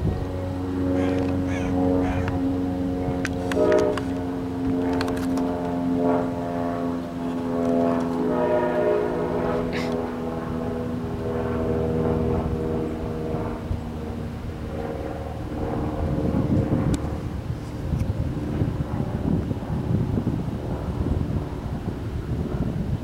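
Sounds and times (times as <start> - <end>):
diesel locomotive humming: 0.0 - 6.4.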